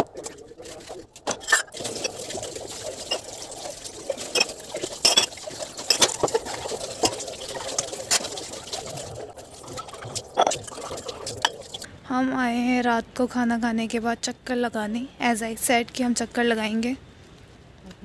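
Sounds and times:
steel utensils clinking: 0.0 - 11.9
tap water running into sink: 0.0 - 11.9.

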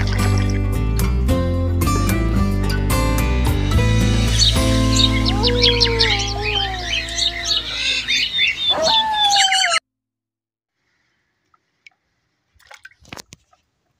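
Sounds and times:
birds chirping: 3.8 - 9.8
wolf howling: 4.4 - 9.8.

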